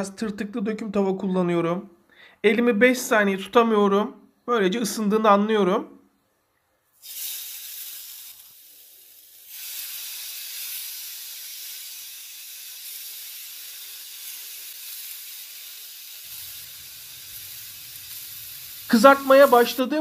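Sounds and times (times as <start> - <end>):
mushrooms sizzling on grill pan: 7.0 - 20.0.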